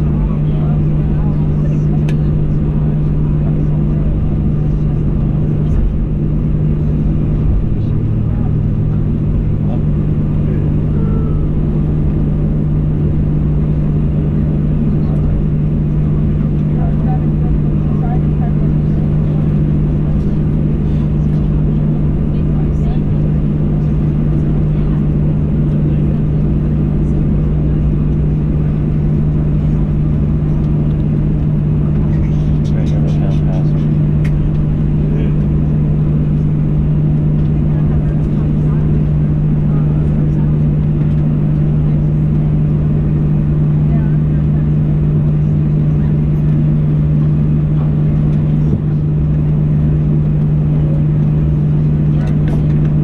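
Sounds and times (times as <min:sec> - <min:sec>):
jet engines idling: 0:00.0 - 0:53.0.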